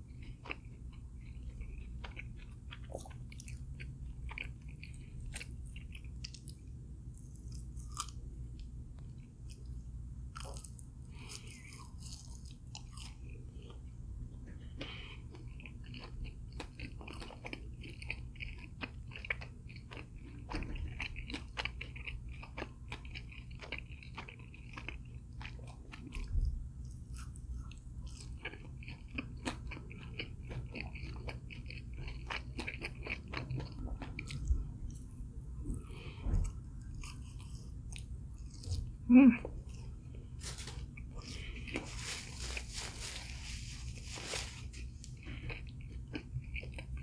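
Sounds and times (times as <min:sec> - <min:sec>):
person chewing crunchy food: 0:00.0 - 0:47.0.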